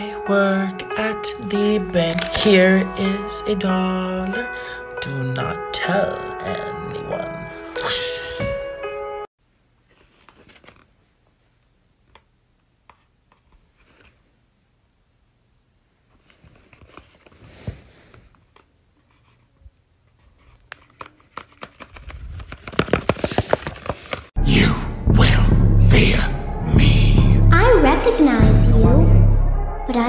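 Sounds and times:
paper rustling and crinkling: 0:09.8 - 0:11.1, 0:13.3 - 0:14.3, 0:16.1 - 0:19.5, 0:20.1 - 0:24.3
sharp paper clicks: 0:20.5 - 0:24.3.

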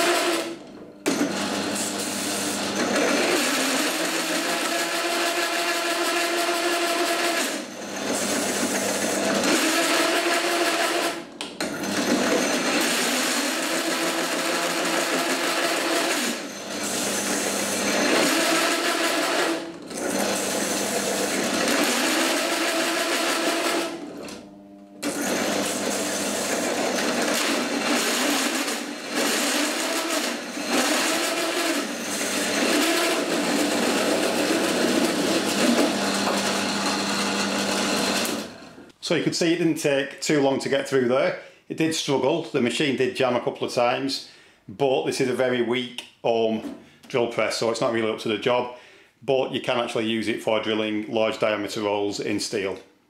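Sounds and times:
drill motor hum: 0:00.0 - 0:38.9.

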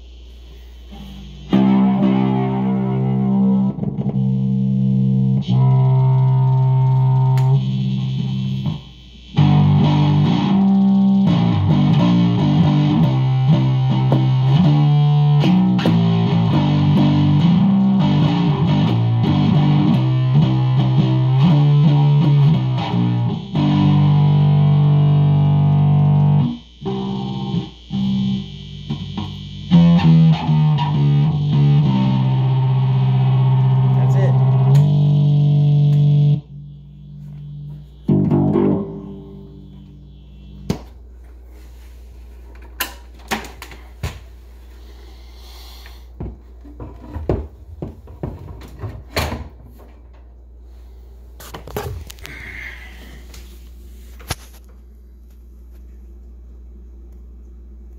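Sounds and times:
plucked electric bass notes: 0:01.0 - 0:40.7.

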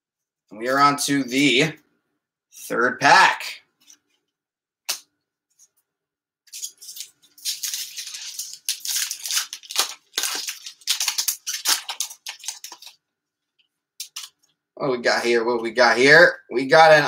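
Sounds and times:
card pack tearing: 0:06.5 - 0:13.0
cards sliding and rustling: 0:06.5 - 0:13.0.

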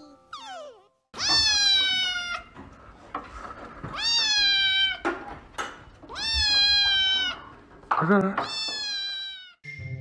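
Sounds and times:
kitten meowing: 0:00.3 - 0:02.5, 0:06.1 - 0:07.4, 0:08.5 - 0:09.6.

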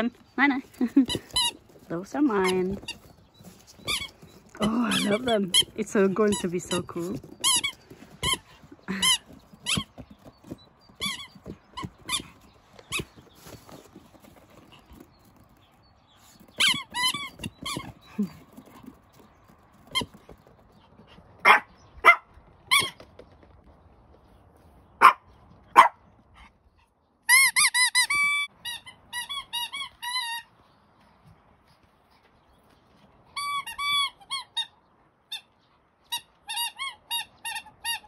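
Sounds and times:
squeaky dog toy squeaking: 0:01.1 - 0:03.0, 0:03.8 - 0:10.1, 0:16.6 - 0:18.0, 0:22.7 - 0:23.0, 0:27.3 - 0:30.5, 0:33.4 - 0:35.5, 0:36.1 - 0:38.0.

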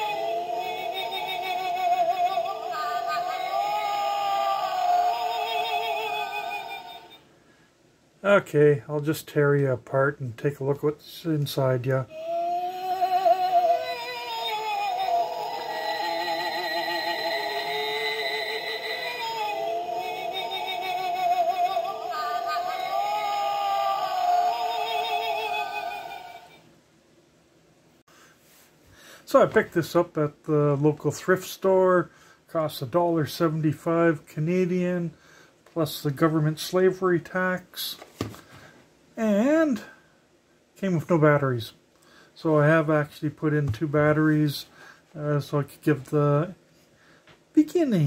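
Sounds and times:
electronic ghostly wail: 0:00.0 - 0:07.2, 0:12.1 - 0:26.6
toy playing warbling synthesized melody: 0:15.0 - 0:26.5.

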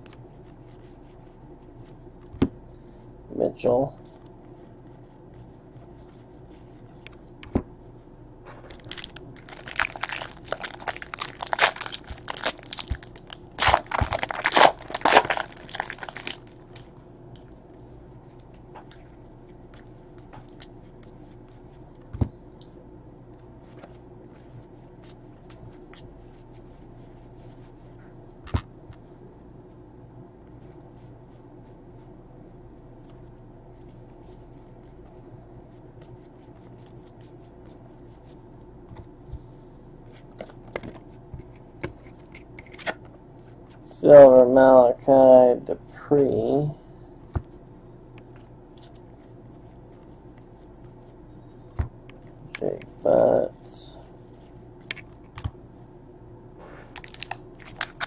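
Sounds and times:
cards being handled: 0:08.6 - 0:17.0, 0:56.9 - 0:58.0
wrapper crinkling and tearing: 0:08.7 - 0:17.0, 0:57.0 - 0:58.0.

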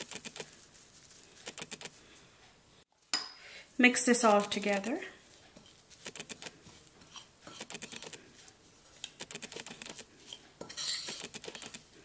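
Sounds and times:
metal spoon scraping ceramic bowl: 0:07.0 - 0:07.9, 0:10.2 - 0:11.7.

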